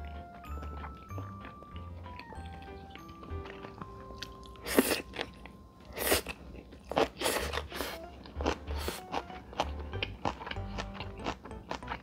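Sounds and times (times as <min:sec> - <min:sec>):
food bitten and chewed: 0:00.0 - 0:12.0.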